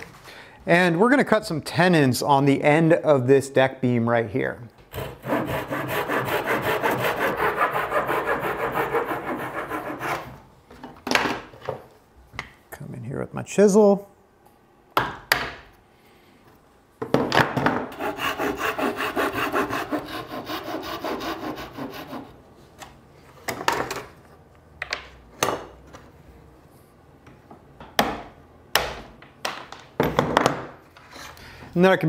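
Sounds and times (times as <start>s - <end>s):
hand saw cutting wood: 4.9s - 10.3s, 17.9s - 22.3s.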